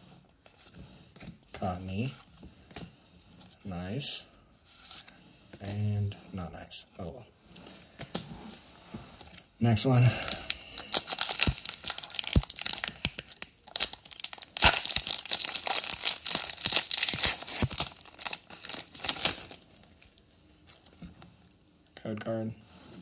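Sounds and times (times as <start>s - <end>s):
foil wrapper tearing and crinkling: 10.5s - 19.6s.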